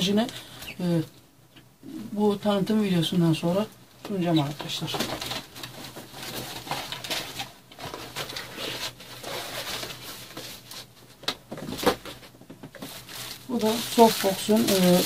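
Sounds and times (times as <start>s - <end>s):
packaging rustling: 4.5s - 15.0s.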